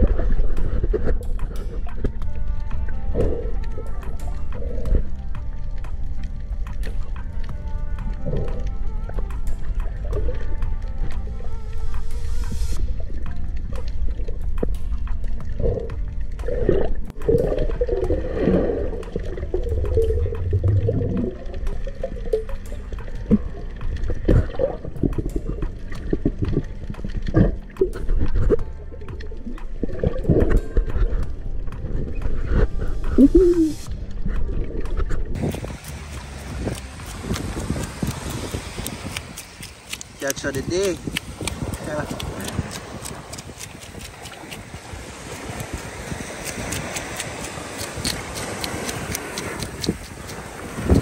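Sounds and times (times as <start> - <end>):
low underwater thumps: 0.0 - 39.0
water gurgling and sloshing: 0.0 - 51.0
wind buffeting microphone: 35.2 - 51.0
sharp clicks: 35.3 - 44.7, 45.5 - 50.4
faint surf: 35.6 - 51.0
small clicks: 46.4 - 50.4.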